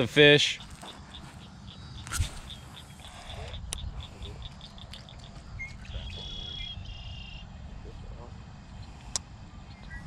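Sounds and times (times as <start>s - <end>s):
crickets chirping: 0.2s - 7.6s.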